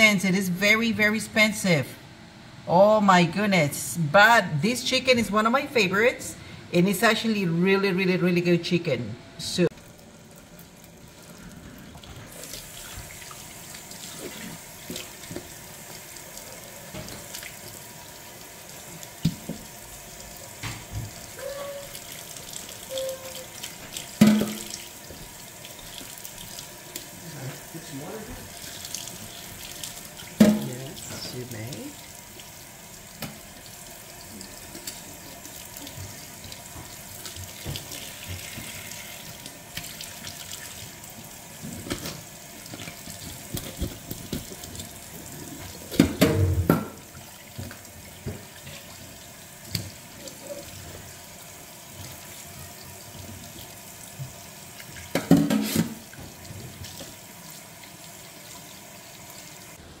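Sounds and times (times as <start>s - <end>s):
chicken rinsed under water: 9.7s - 59.8s
faucet running into metal sink: 20.6s - 51.0s.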